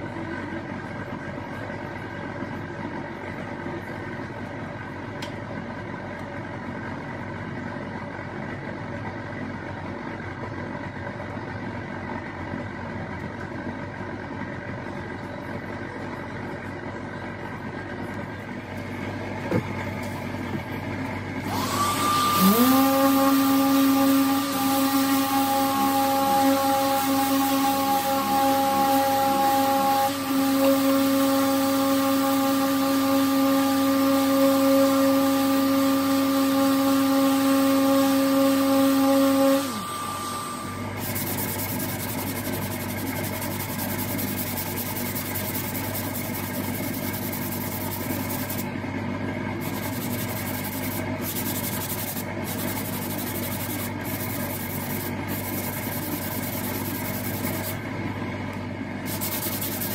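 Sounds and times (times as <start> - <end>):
power sander humming: 21.4 - 48.7, 49.6 - 57.9, 59.1 - 59.9
steady rubbing noise: 22.4 - 48.7, 49.6 - 57.8, 59.0 - 59.9.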